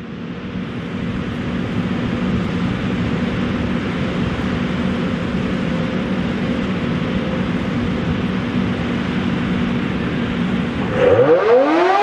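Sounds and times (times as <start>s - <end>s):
warning siren steady tone: 10.8s - 12.0s.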